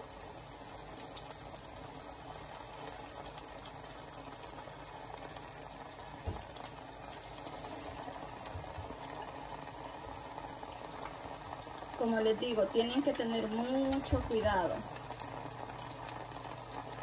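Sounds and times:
food frying in hot oil: 0.0 - 17.0.

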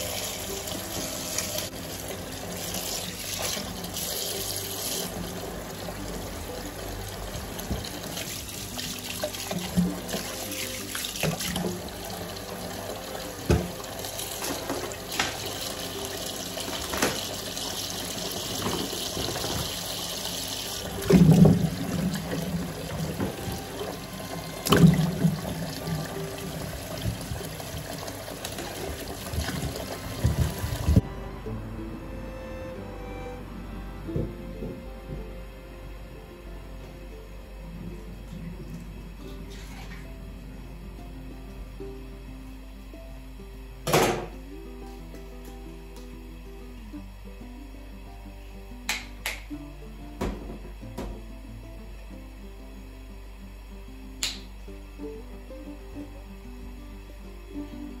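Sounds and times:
tap running into sink: 7.4 - 12.0, 13.4 - 15.7, 16.6 - 20.0, 20.8 - 31.0.

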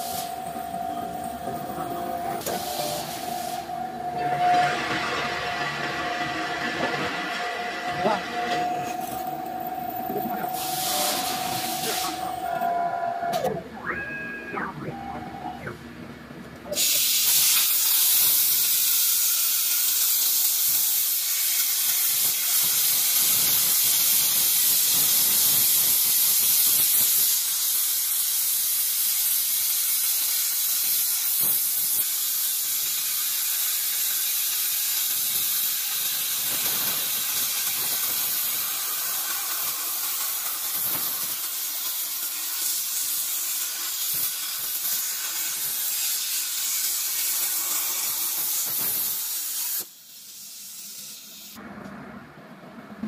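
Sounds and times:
plasma torch arc hissing: 0.0 - 0.5, 2.3 - 4.4, 8.0 - 12.6, 16.7 - 51.6.

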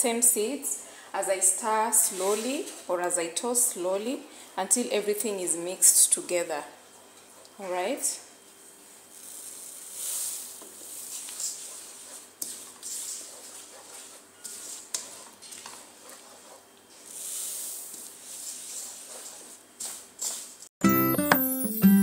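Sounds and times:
wooden spoon stirring seeds: 9.0 - 20.7.

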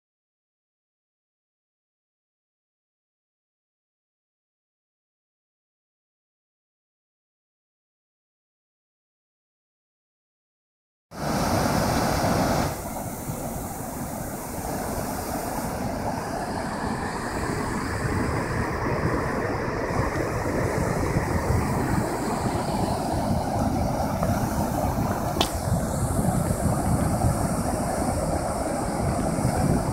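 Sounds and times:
wind rumbling on microphone: 11.2 - 29.9.

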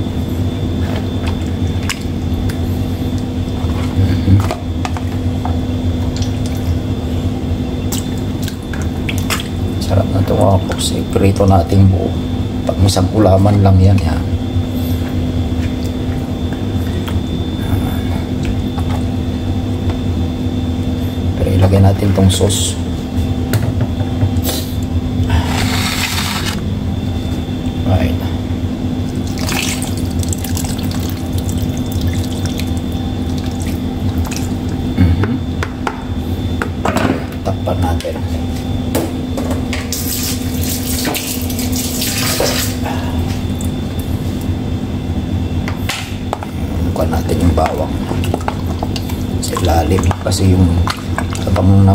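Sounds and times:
faint high whine: 0.0 - 48.3
low machine hum: 0.0 - 51.9
water running: 29.2 - 34.9, 47.5 - 51.9.

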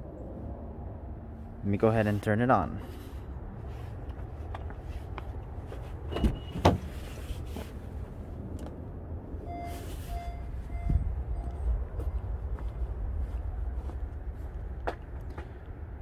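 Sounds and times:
car warning chime beeping: 9.4 - 12.4.

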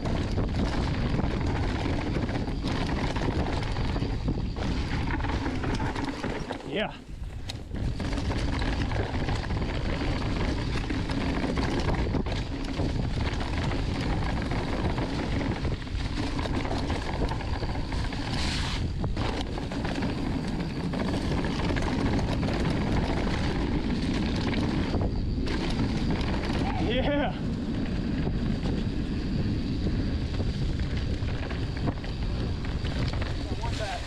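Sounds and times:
bike clattering over rough ground: 0.0 - 34.0
bike tyres rolling on dirt: 0.0 - 34.0
wind rushing over microphone: 0.0 - 34.0.

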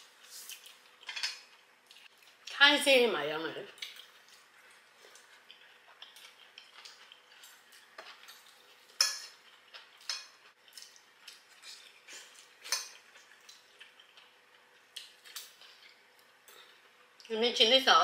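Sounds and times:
cutlery clinking on dishes: 1.0 - 1.4, 8.0 - 9.4, 10.0 - 10.4, 12.6 - 13.0.

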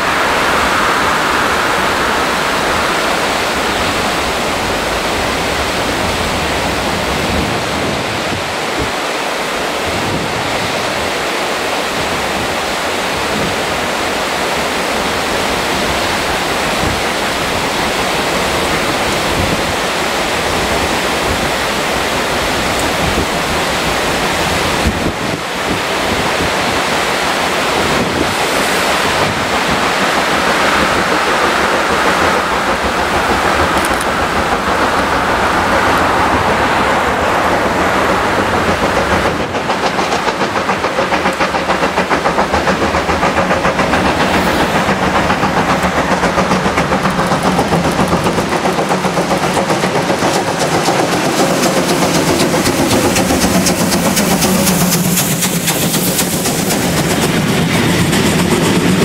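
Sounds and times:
wind buffeting microphone: 0.0 - 9.1, 9.8 - 59.0.

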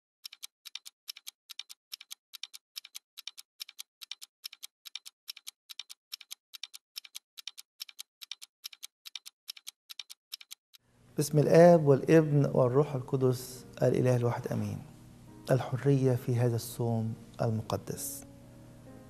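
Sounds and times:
clock ticking double clicks: 0.2 - 10.6.

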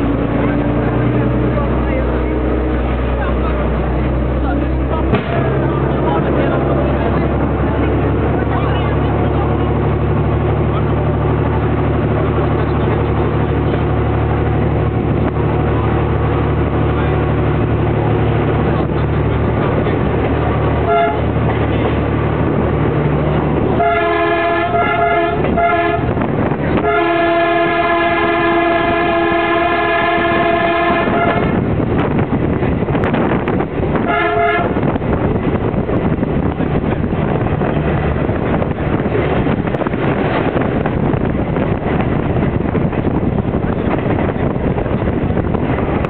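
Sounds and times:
railcar engine running: 0.0 - 46.0
train horn blasts: 20.8 - 21.4, 23.8 - 26.2, 26.8 - 31.6, 34.0 - 34.9.

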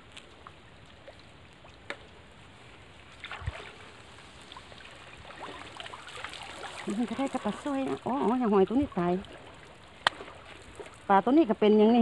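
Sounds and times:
water trickling and dripping: 0.0 - 12.0.

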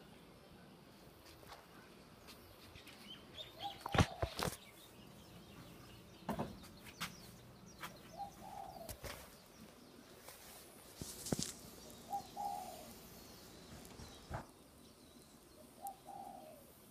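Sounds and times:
doves cooing: 3.4 - 4.6, 8.1 - 9.4, 11.2 - 14.5, 15.5 - 16.9.

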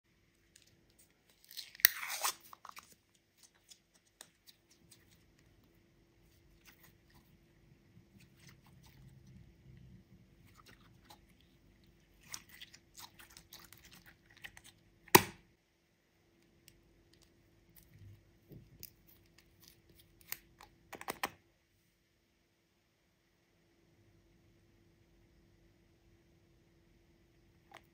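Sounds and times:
slime crackling and squelching: 0.4 - 15.3.

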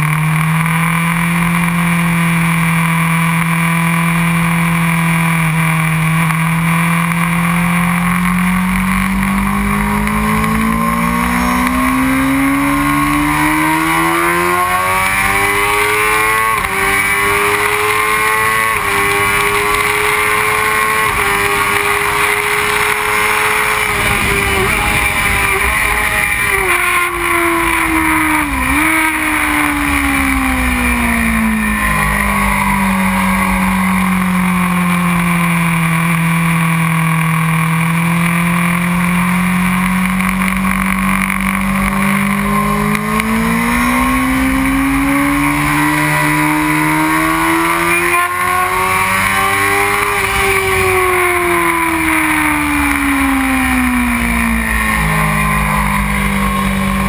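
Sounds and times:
motorcycle engine at speed: 0.0 - 57.0
wind rushing over microphone: 23.5 - 29.0.

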